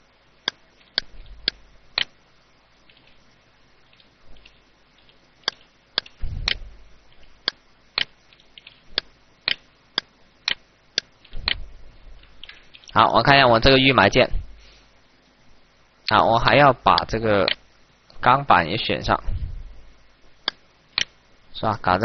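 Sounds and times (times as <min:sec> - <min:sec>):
computer mouse clicking: 0:00.4 - 0:02.2, 0:03.9 - 0:13.0, 0:20.4 - 0:21.2
dull low thud: 0:06.2 - 0:06.9, 0:14.3 - 0:14.6, 0:19.2 - 0:19.8.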